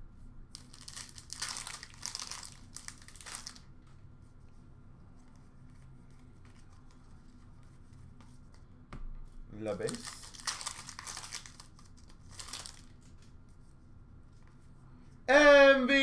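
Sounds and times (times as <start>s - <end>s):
low steady hum: 0.0s - 16.0s
plastic packaging crinkling: 0.5s - 3.7s, 9.7s - 13.2s.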